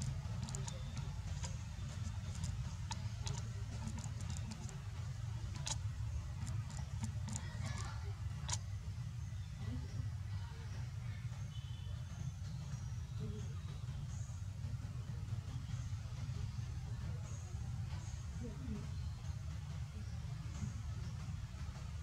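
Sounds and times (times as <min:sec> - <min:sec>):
small clicks and ticks: 0:00.0 - 0:08.6
steady low rumble: 0:00.0 - 0:11.4.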